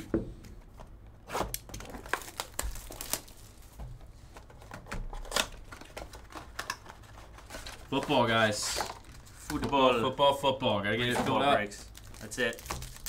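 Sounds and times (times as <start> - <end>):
plastic wrap tearing and crinkling: 1.2 - 3.8, 11.6 - 13.0.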